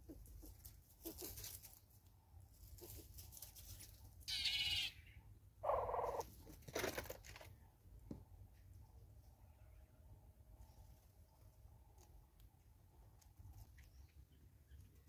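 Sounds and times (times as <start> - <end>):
buzzy bird calls: 4.3 - 6.3.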